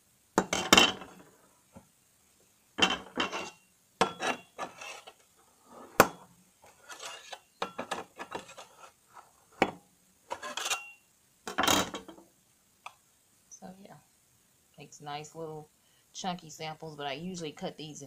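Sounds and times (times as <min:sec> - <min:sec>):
blade scraping metal guide: 0:04.2 - 0:05.9, 0:06.8 - 0:07.4.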